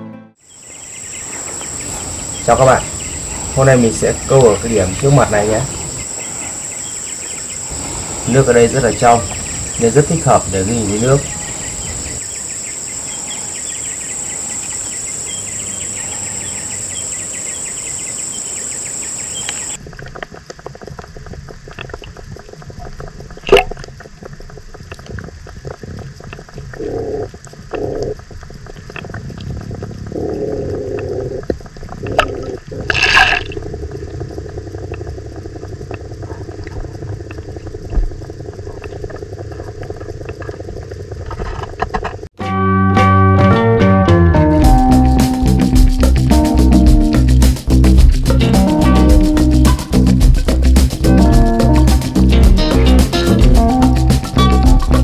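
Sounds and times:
insects trilling: 0:00.4 - 0:42.3, 0:44.8 - 0:55.0
underwater water rumble: 0:19.6 - 0:41.8.

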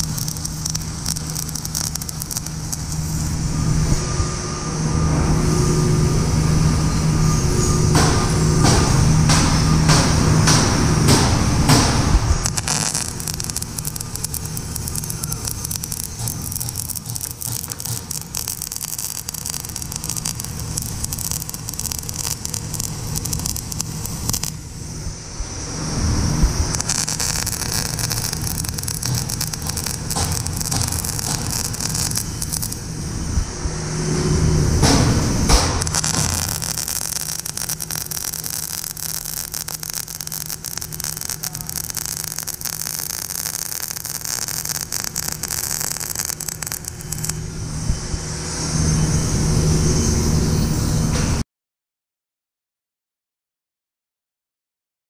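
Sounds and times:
welding arc crackling and sizzling: 0:00.0 - 0:04.1, 0:07.0 - 0:25.0, 0:26.0 - 0:33.2, 0:34.7 - 0:47.7
low rumble: 0:00.0 - 0:51.4.

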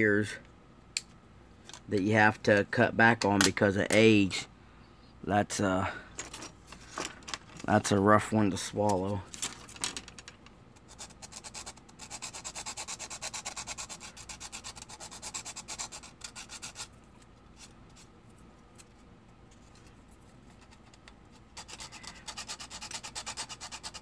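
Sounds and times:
hand sanding plastic: 0:10.8 - 0:18.9, 0:19.6 - 0:24.0.

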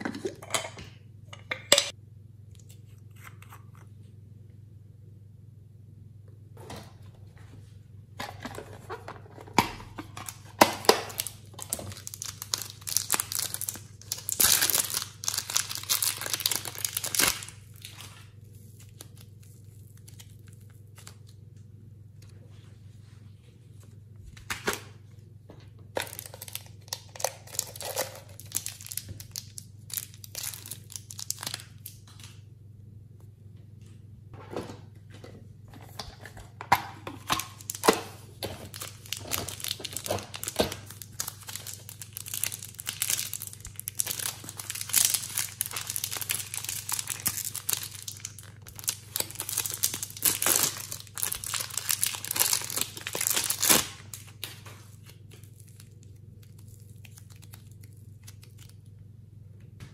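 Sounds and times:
plastic packaging crinkling and tearing: 0:08.4 - 0:21.4, 0:26.0 - 0:32.4, 0:37.0 - 0:59.0.

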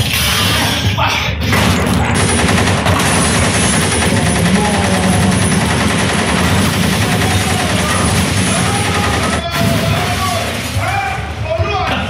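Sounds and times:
automatic gunfire bursts: 0:01.6 - 0:10.8.

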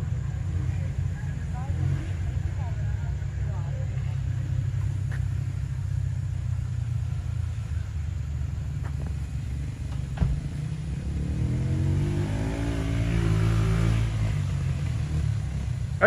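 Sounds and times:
jeep engine revving: 0:00.0 - 0:16.0.

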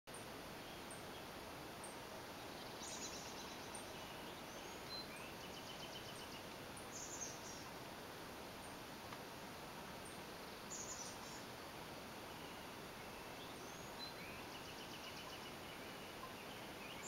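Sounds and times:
distant birdsong: 0:00.1 - 0:17.0
steady hiss: 0:00.1 - 0:17.0.

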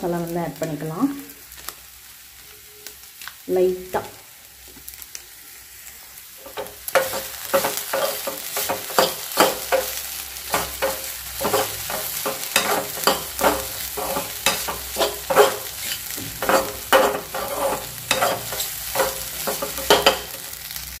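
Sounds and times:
eggs sizzling in pan: 0:00.0 - 0:21.0
spoon scraping metal pan: 0:06.4 - 0:20.5.

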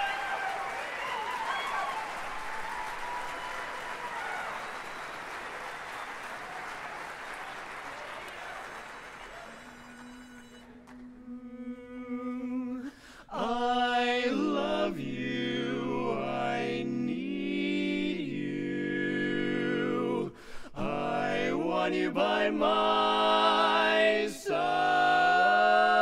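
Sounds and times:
men singing in harmony: 0:11.2 - 0:26.0.

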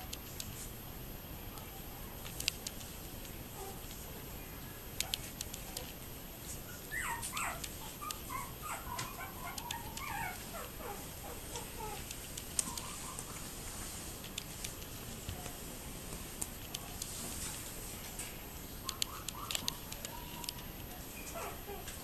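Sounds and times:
faint clicks: 0:05.0 - 0:06.0, 0:06.9 - 0:10.3, 0:11.5 - 0:13.4, 0:16.4 - 0:21.0
puppies whimpering: 0:06.7 - 0:13.3.

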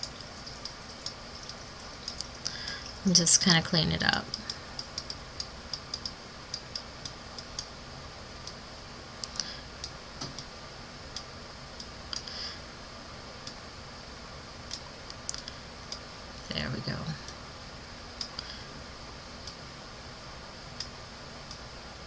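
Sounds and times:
light irregular clicks: 0:04.2 - 0:07.7, 0:14.7 - 0:16.0, 0:18.2 - 0:18.6.

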